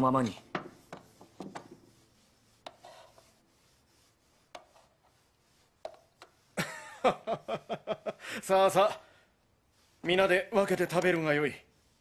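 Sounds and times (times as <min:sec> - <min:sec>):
man chuckling: 0:06.6 - 0:08.4.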